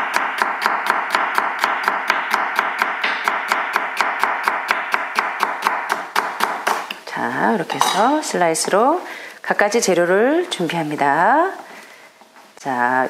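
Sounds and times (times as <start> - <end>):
knife chopping on wooden board: 0.0 - 7.0.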